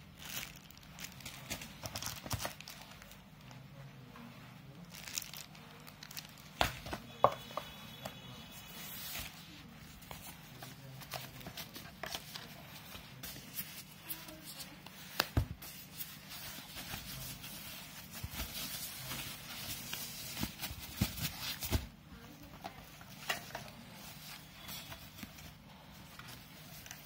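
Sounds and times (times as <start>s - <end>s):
foam plastic sleeve crinkling: 0.2s - 3.2s, 4.9s - 6.6s.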